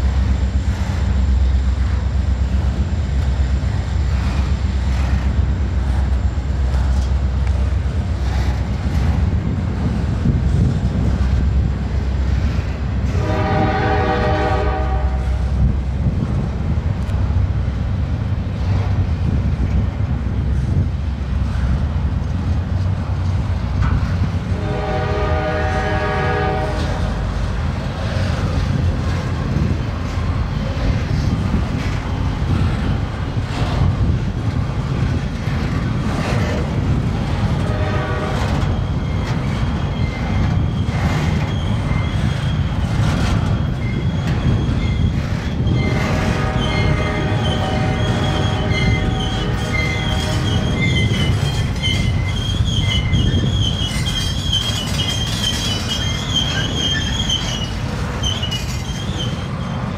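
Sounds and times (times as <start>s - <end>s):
freight train rumbling: 0.0s - 59.9s
locomotive air horn: 13.0s - 15.5s, 24.5s - 27.2s, 37.6s - 38.8s, 45.7s - 52.1s.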